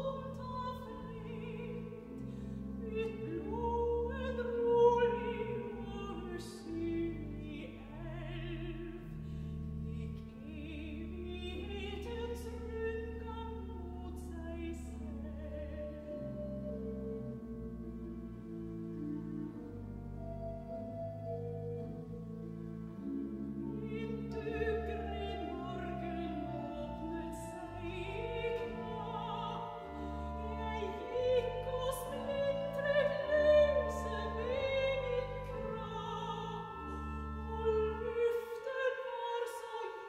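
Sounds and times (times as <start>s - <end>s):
soprano singing with vibrato: 0.0s - 2.1s, 2.8s - 9.0s, 9.9s - 16.2s, 23.6s - 40.0s
pipe organ chords: 0.0s - 40.0s.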